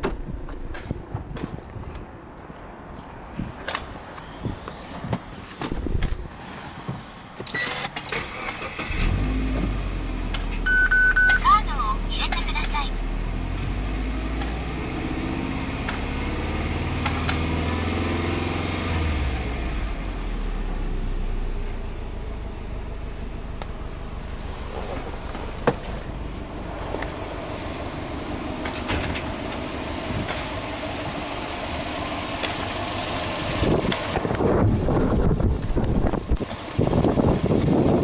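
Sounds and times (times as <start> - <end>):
car engine idling: 18.4 - 38.0.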